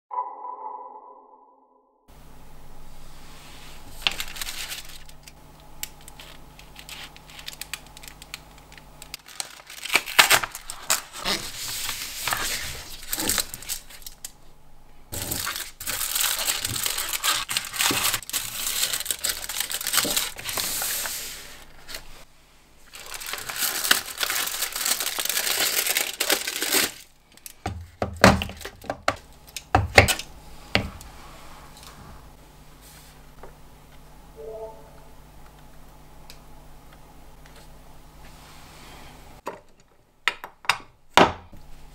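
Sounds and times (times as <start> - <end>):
wrapper and foil crinkling: 3.9 - 14.4, 15.1 - 22.2, 22.9 - 27.6.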